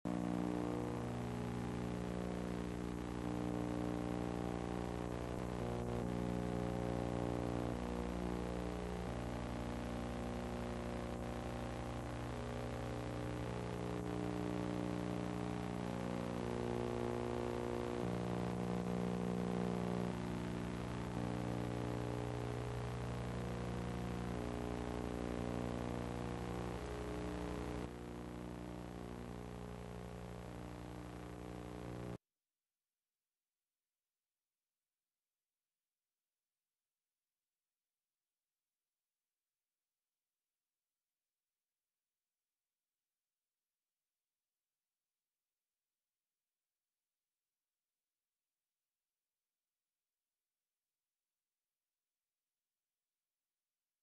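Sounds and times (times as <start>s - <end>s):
electrical hum: 0.1s - 32.2s.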